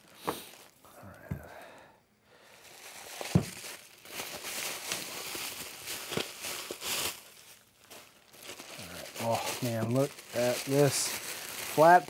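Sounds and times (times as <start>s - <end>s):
plastic packaging crinkling: 0.0s - 0.9s, 2.6s - 12.0s.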